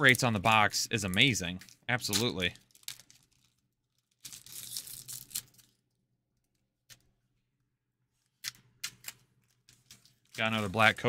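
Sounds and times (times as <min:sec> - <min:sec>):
foil wrapper tearing: 0:02.1 - 0:05.8.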